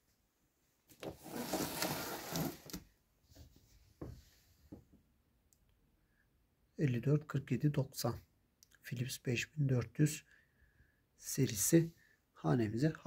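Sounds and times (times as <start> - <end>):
cardboard box rustling scrape: 1.0 - 2.8.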